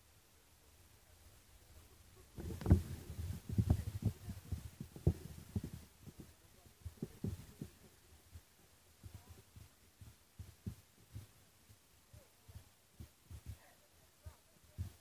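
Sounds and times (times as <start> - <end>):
low thumps and rumbling: 2.3 - 11.8.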